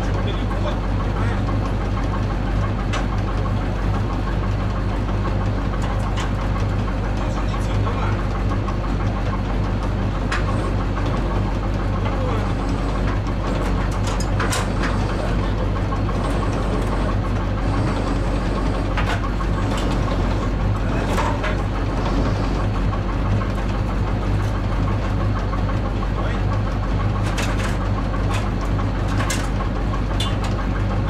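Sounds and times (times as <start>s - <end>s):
truck engine idling: 0.0s - 31.0s
metallic clanks: 12.9s - 17.1s, 27.1s - 30.8s.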